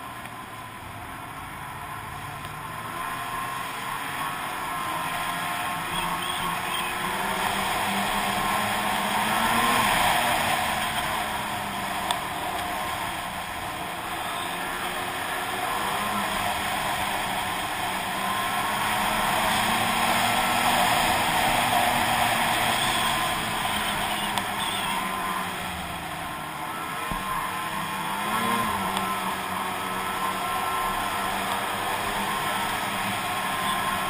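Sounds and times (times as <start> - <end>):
snowmobile engine running: 0.0 - 34.0
steady rush of noise: 0.0 - 34.0.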